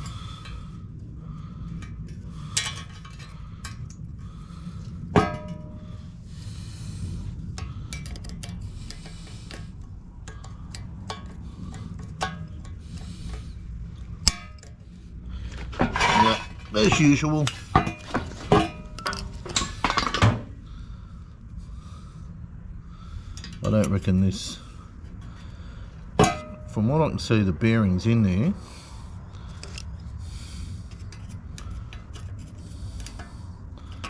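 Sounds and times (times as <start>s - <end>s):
metallic clicks and scrapes: 7.0s - 20.3s, 29.3s - 34.0s.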